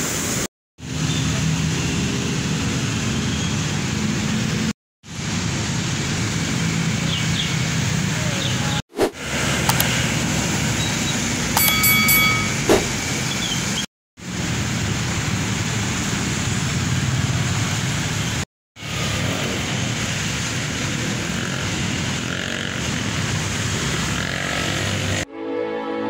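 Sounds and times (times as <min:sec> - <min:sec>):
brief high tone: 0:11.6 - 0:12.8.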